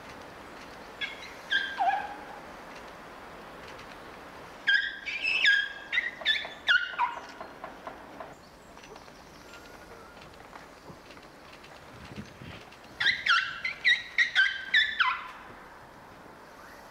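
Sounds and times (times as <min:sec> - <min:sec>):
elephant calves squeaking: 0:12.2 - 0:15.3.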